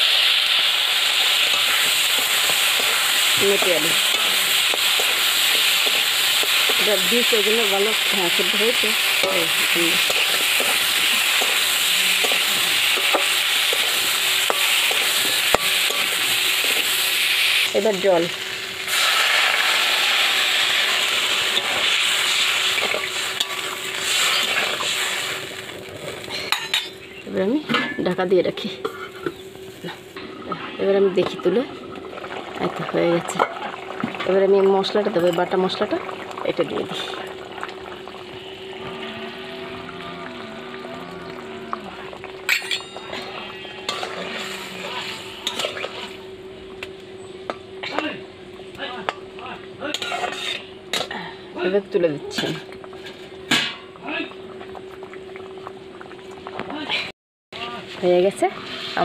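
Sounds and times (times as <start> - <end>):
water sizzling in hot oil: 0.0 - 27.1, 30.9 - 46.3
spatula stirring food: 1.1 - 17.2
metal spatula scraping a pan: 21.6 - 25.1, 42.6 - 46.2.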